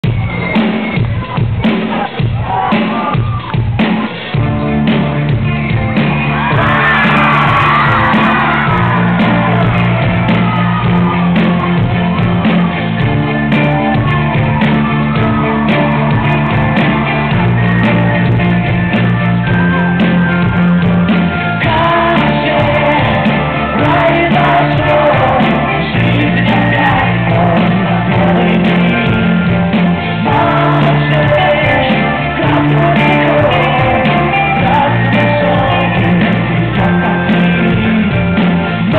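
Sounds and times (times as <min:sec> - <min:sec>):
rock band playing live: 0:00.0 - 0:38.9
man singing lead vocal: 0:21.5 - 0:38.9.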